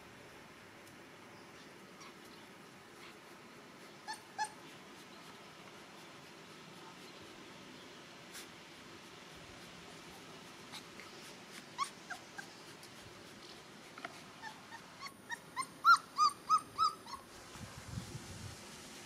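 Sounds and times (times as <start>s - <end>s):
puppy whimpering: 4.0s - 4.7s, 10.7s - 13.0s, 14.4s - 17.3s
puppy yelping: 4.0s - 4.7s, 11.5s - 12.8s, 14.4s - 17.3s.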